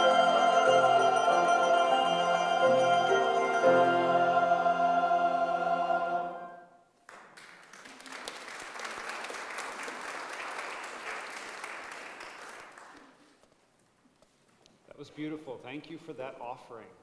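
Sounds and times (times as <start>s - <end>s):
choir singing a chord: 0.0s - 6.8s
congregation applauding: 7.0s - 13.4s.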